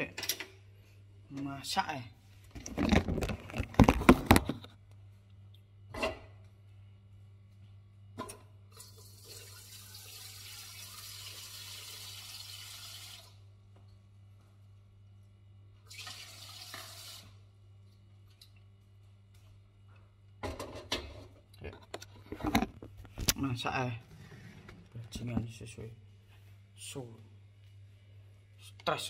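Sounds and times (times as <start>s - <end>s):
low steady hum: 0.0s - 9.4s, 17.3s - 29.0s
kitchen tap running: 8.7s - 13.4s, 15.9s - 17.4s.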